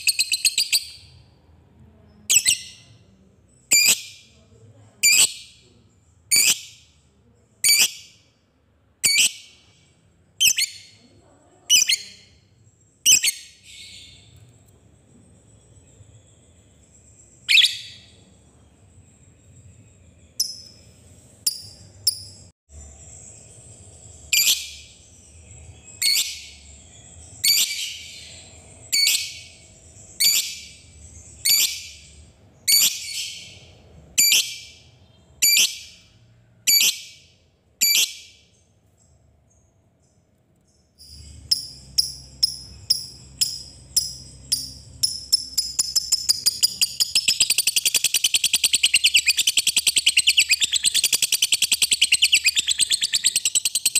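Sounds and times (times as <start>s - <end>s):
lovebird chirping and trilling: 0.0s - 1.2s, 2.2s - 4.4s, 5.0s - 5.6s, 6.3s - 7.0s, 7.6s - 8.2s, 9.0s - 9.7s, 10.4s - 14.4s, 15.6s - 18.4s, 19.5s - 39.6s, 41.0s - 53.9s.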